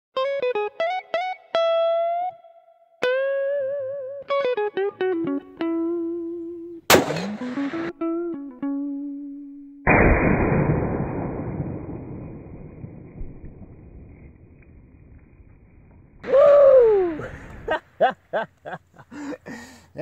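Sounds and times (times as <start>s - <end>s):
electric guitar music: 0.2s - 10.0s
rifle shot: 6.9s - 7.9s, 9.9s - 14.4s
dull blast with rumble: 9.9s - 14.5s.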